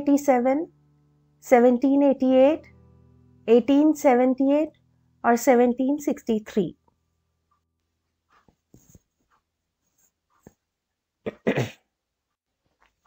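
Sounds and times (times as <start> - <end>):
person sneezing: 11.3 - 11.8.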